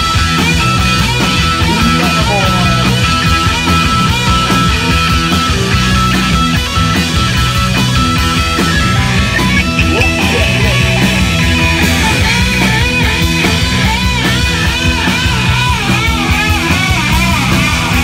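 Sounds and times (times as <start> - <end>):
punk rock band playing: 0.0 - 18.0
high guitar line bending: 0.6 - 14.1.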